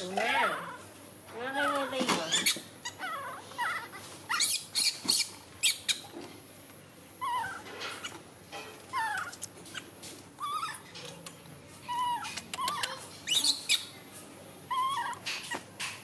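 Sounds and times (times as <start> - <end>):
baby monkeys calling: 1.4 - 6.2, 7.2 - 8.2, 8.9 - 10.9, 11.8 - 14.0, 14.7 - 16.0.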